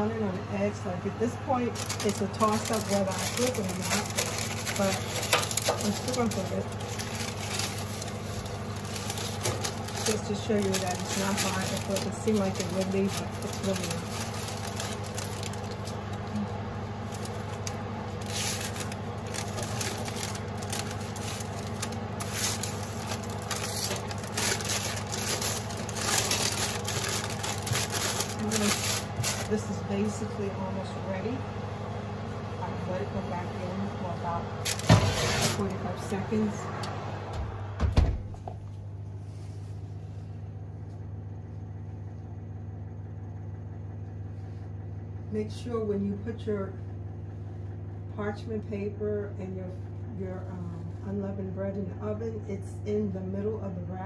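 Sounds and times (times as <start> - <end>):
steady low hum: 0.0 - 54.0
parchment paper crinkling: 1.4 - 30.2, 34.6 - 36.2
spatula scraping tray: 34.9 - 35.7.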